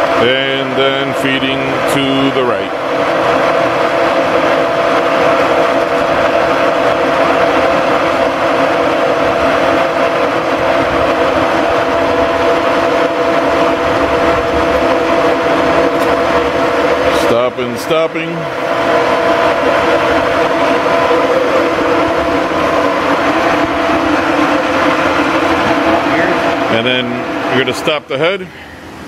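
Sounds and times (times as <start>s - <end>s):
milling machine motor whine: 0.0s - 29.0s.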